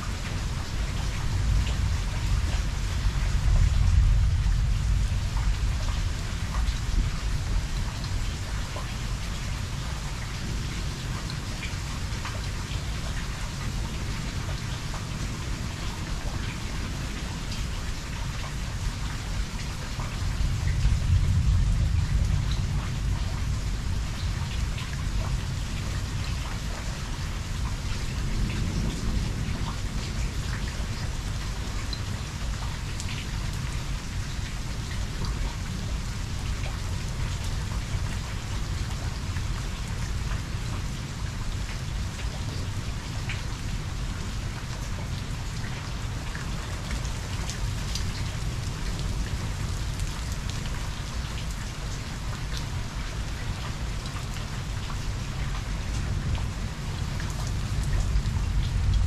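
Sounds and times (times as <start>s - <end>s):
low rumble of thunder: 0.0s - 59.0s
steady rain falling: 0.0s - 59.0s.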